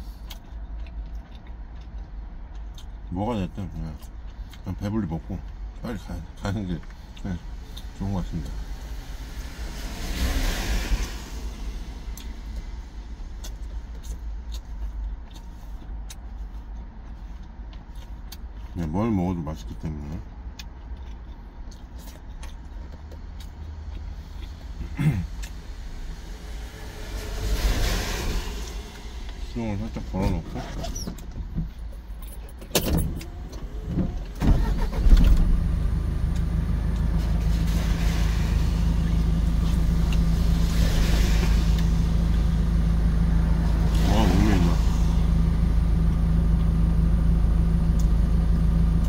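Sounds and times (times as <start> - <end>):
vehicle swishing past: 7.4 - 14.4, 23.2 - 31.9, 33.0 - 46.1
truck engine idling: 33.2 - 49.0.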